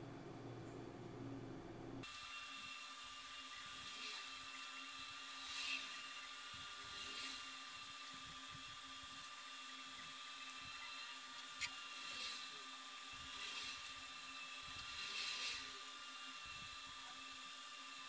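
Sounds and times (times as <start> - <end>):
faint electrical hum and hiss: 0.0 - 18.0.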